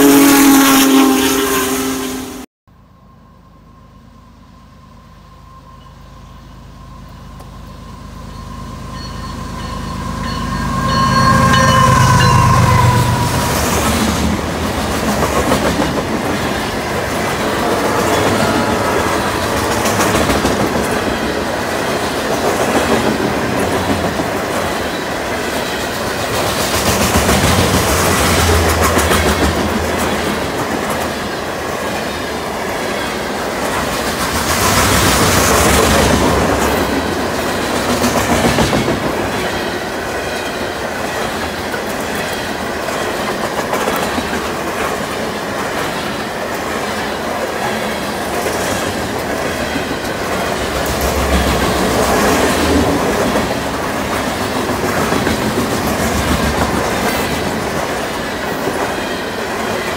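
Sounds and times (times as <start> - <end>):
diesel locomotive engine: 0.0 - 59.9
train wheels clattering on rail joints: 13.6 - 32.3, 32.9 - 59.9.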